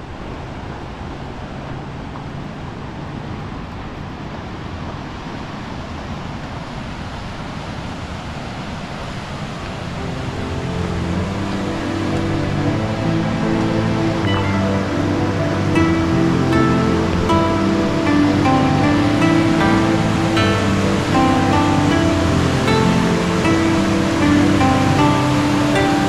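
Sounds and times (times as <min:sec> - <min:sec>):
river rushing through rapids: 0:00.0 - 0:26.0
music: 0:10.0 - 0:26.0.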